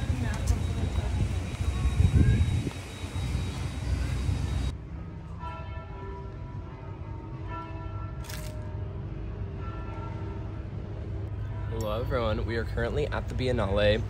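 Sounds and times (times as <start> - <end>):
bells ringing: 0.0 - 4.7
outdoor background noise: 0.0 - 14.0.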